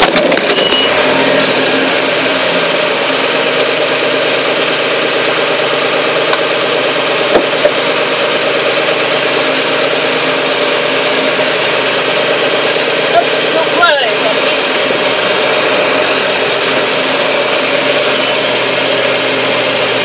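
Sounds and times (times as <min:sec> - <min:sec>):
tractor diesel engine running: 0:00.0 - 0:20.0.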